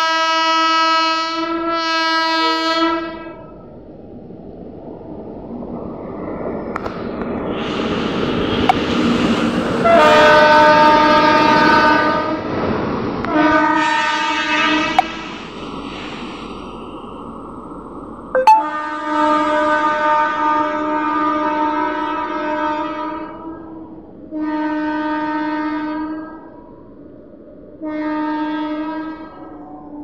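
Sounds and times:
locomotive horn blasts: 0.0s - 3.4s, 9.8s - 12.4s, 13.3s - 15.1s, 18.4s - 23.3s, 24.4s - 26.1s
train wheels rumbling on rail: 0.0s - 30.0s.

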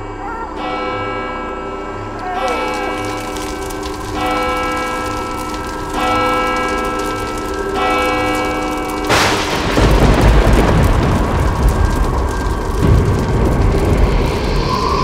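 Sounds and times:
loud low rumble: 0.0s - 15.0s
sudden crash: 6.8s - 15.0s.

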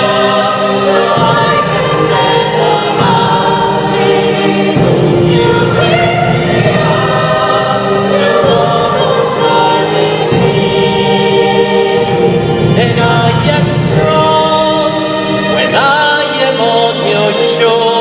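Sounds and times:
mixed choir singing: 0.0s - 18.0s
strings: 0.0s - 18.0s
male soloist singing: 12.1s - 18.0s.

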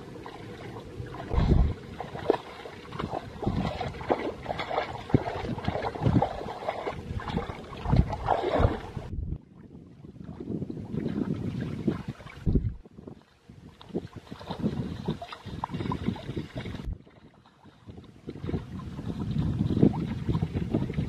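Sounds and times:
hands splashing in muddy water: 0.2s - 9.1s.

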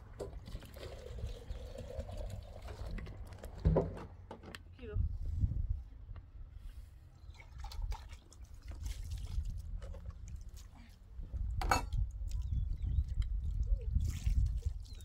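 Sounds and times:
dishes clinking: 11.6s - 12.0s.

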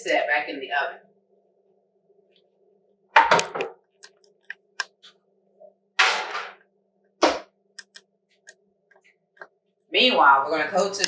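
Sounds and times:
metal baking sheet clattering: 6.0s - 6.5s.

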